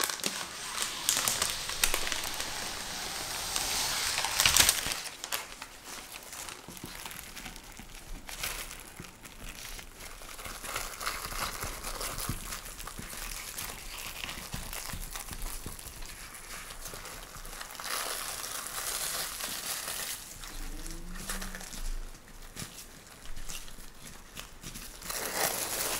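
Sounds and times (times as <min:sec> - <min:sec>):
plastic wrap crinkling: 0:00.0 - 0:25.9.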